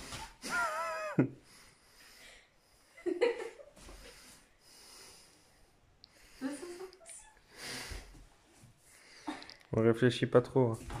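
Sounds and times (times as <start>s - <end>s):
person breathing with effort: 3.8s - 6.8s, 7.4s - 8.2s.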